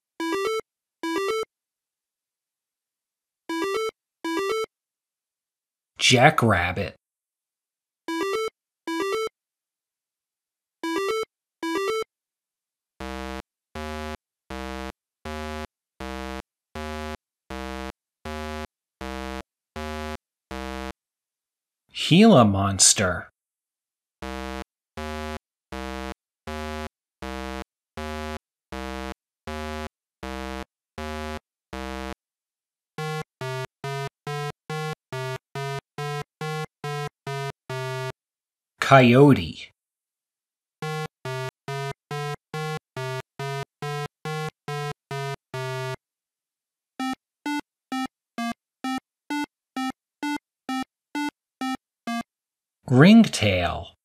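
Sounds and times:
buzzy eight-bit tone pulses: 13.0s - 20.9s, 24.2s - 32.2s, 33.0s - 38.1s, 40.8s - 46.0s.

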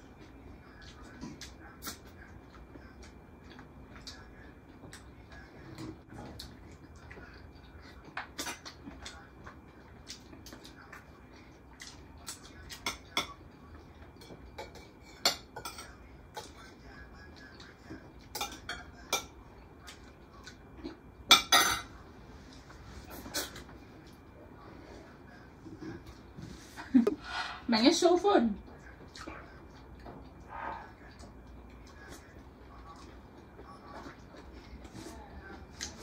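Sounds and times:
cutlery clinking on plates: 21.3s - 21.9s.

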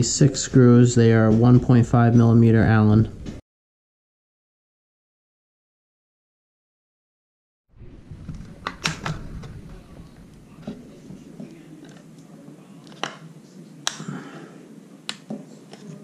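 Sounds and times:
sharp plastic clicks and snaps: 13.8s - 14.1s.

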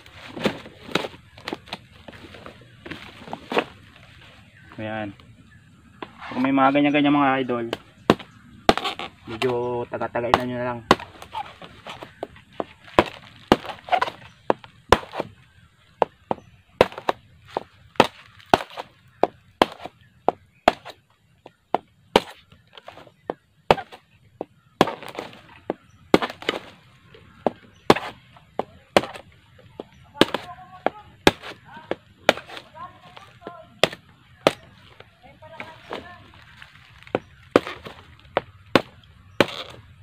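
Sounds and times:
knife chopping bamboo: 7.7s - 9.6s, 10.2s - 15.3s, 16.0s - 19.9s, 20.7s - 21.0s, 21.8s - 26.7s, 27.4s - 35.0s, 36.9s - 39.8s.

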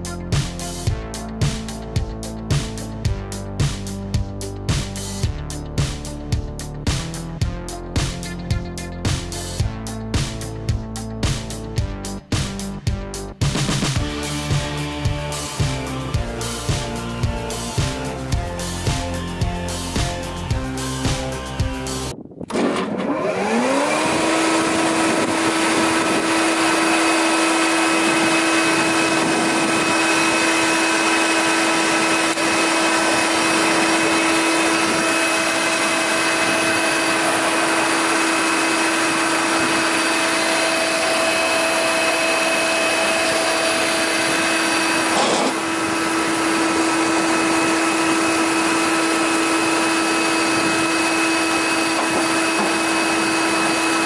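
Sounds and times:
thickness planer motor whining: 14.0s - 54.0s.

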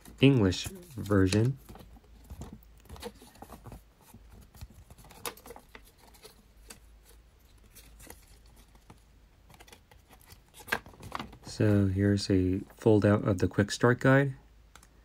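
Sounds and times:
paper rustling and crinkling: 0.0s - 11.7s.

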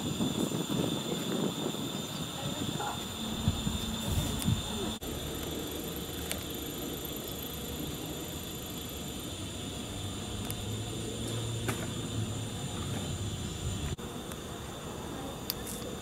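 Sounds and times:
high-pitched whining tones: 0.0s - 14.0s
electrical hum: 0.0s - 16.0s.

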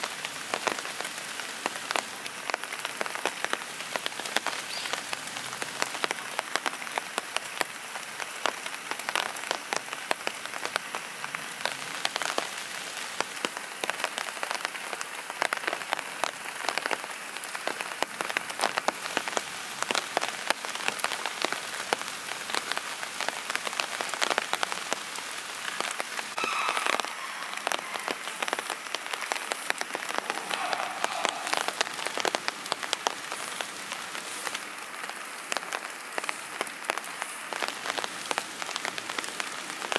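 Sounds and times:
raindrops ticking on a surface: 0.0s - 39.9s
steady rain: 0.0s - 39.9s.

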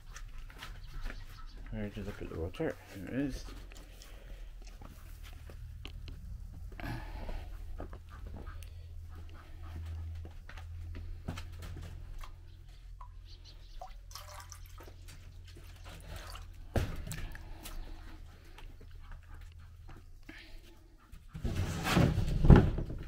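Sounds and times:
water dripping and trickling: 12.9s - 17.7s.

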